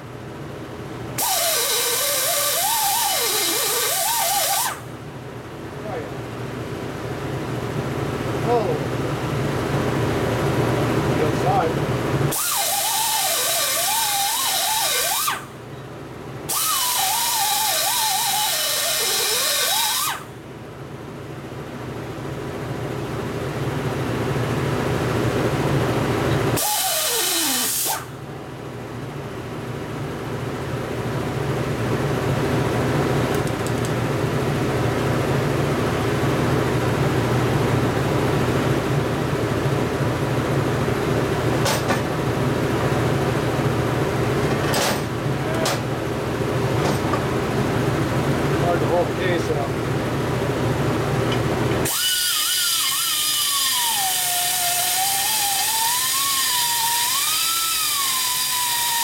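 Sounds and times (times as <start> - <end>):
low machine hum: 0.0 - 59.0
die grinder whine cutting metal: 1.2 - 4.8, 12.3 - 15.5, 16.5 - 20.3, 26.5 - 28.1, 51.3 - 59.0.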